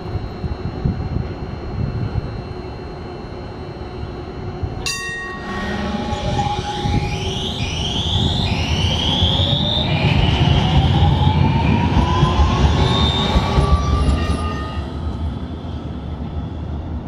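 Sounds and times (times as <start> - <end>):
tram humming: 0.0 - 17.0
traction motors whining: 0.2 - 16.3
short ringing chime: 4.8 - 6.2.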